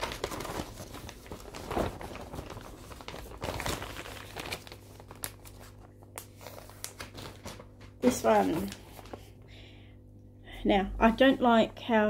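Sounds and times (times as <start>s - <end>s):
crinkly fabric rustling: 0.0s - 9.4s.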